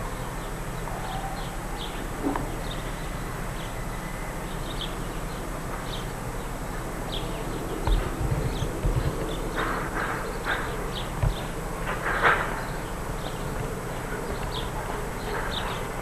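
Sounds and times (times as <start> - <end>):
small birds chirping: 0.0 - 16.0
tape hiss and hum: 0.0 - 16.0
thumps on microphone: 7.8 - 12.0.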